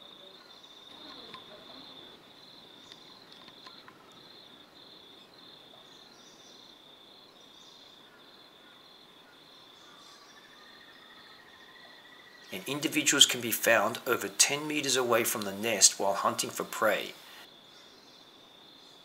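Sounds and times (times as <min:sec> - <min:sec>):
high-pitched insect chirp: 0:00.0 - 0:13.2
soft hiss: 0:12.5 - 0:19.0.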